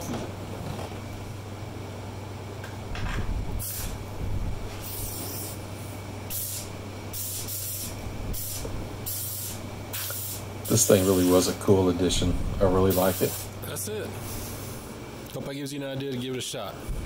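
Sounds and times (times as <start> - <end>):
steady low hum: 0.0 - 17.0
compressed air hissing bursts: 3.6 - 4.0, 4.6 - 11.6, 12.8 - 13.6, 14.2 - 14.9.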